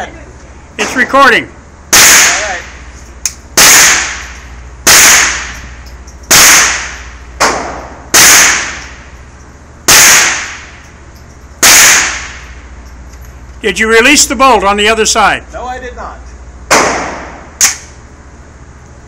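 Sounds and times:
gunshots echoing indoors: 3.6 - 4.3, 4.9 - 5.6, 6.3 - 9.0, 9.9 - 10.7, 11.6 - 12.5.

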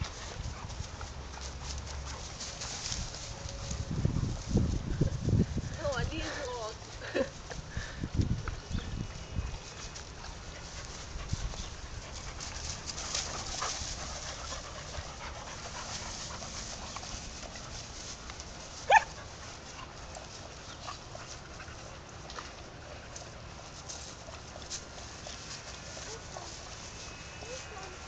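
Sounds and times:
dogs scuffling on grass: 0.0 - 28.0
dog yelp: 18.9 - 19.1.

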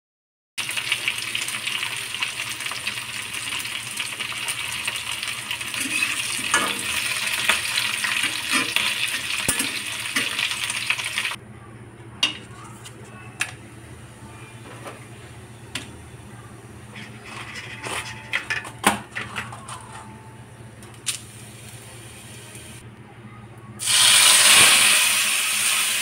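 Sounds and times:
vegetables sizzling in a wok: 0.6 - 11.4, 23.8 - 26.0
spatula scraping a pan: 16.9 - 18.2.

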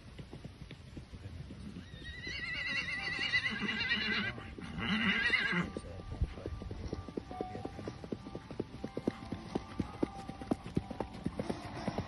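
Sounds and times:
faint hoofbeats: 0.0 - 12.0
horse whinnying: 1.8 - 5.8.

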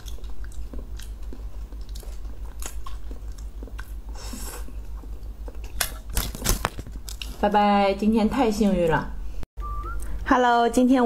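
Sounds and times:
mouth chewing snack: 0.0 - 6.4
steady low hum: 0.0 - 11.0.

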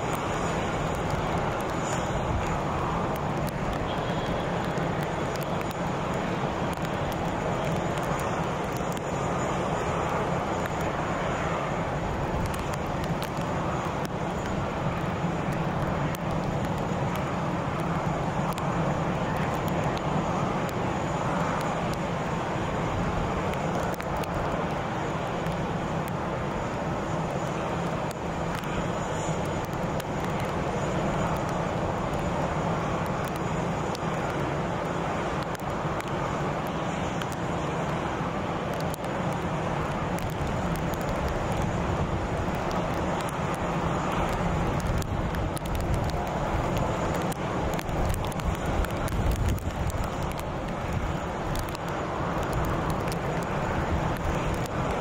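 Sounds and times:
jet engines droning: 0.0 - 55.0.

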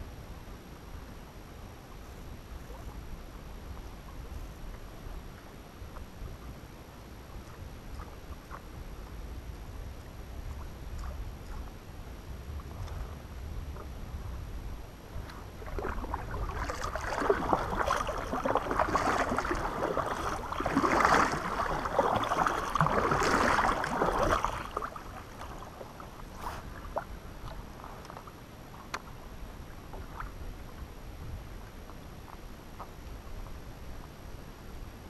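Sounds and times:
paddle splashing water: 1.9 - 34.2
light ticks: 28.9 - 29.1.

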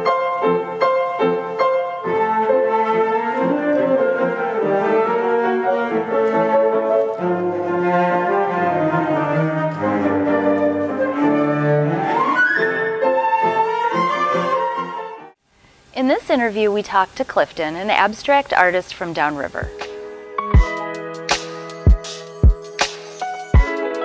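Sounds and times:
piano accompaniment: 0.0 - 15.4, 19.5 - 24.0
cello: 2.0 - 15.2
flute: 9.0 - 15.4.

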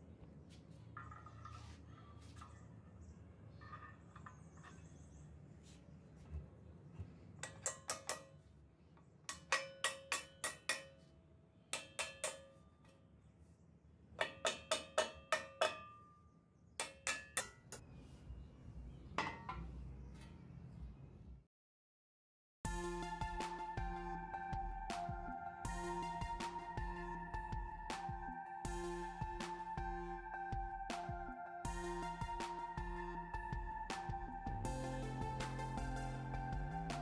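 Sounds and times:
small hammer tapping on steel: 7.4 - 8.4, 9.2 - 11.1, 11.7 - 13.0, 14.2 - 16.0, 16.8 - 17.8.

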